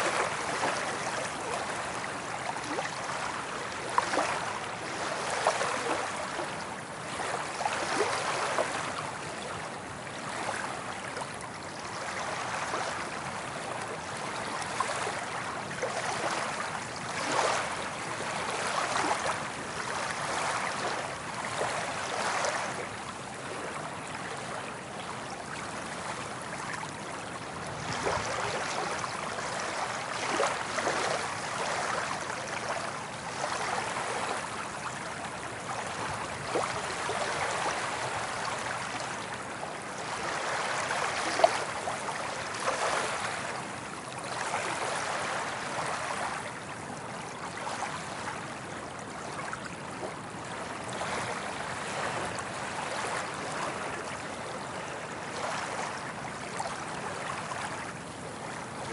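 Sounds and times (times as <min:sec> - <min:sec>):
small waves washing onto beach: 0:00.0 - 0:58.9.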